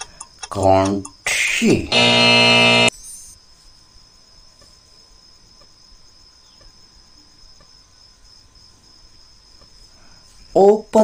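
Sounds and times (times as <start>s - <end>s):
faint ticks: 0.0s - 1.2s, 5.6s - 5.8s, 6.5s - 6.8s
high-pitched whine: 1.7s - 2.9s.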